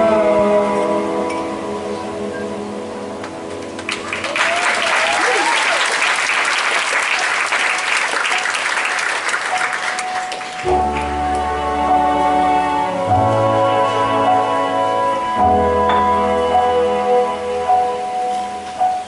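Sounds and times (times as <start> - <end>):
audience applauding: 3.7 - 11.4
person whooping: 4.2 - 5.9.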